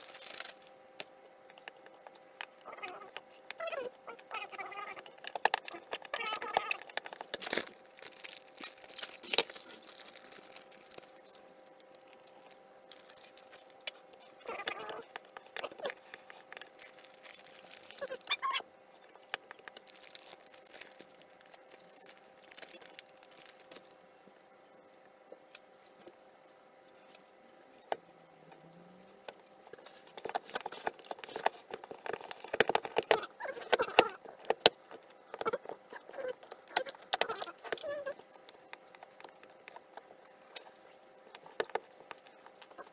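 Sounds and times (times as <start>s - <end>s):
paper packet crinkling: 0.0s - 0.7s, 4.4s - 13.8s, 14.4s - 18.6s, 19.2s - 23.9s, 29.8s - 37.9s
faint steady hum: 0.0s - 42.9s.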